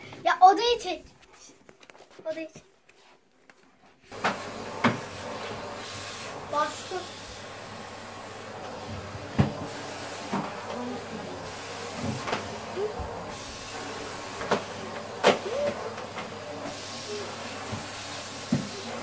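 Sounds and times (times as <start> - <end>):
vacuum cleaner running: 4.1 - 19.0.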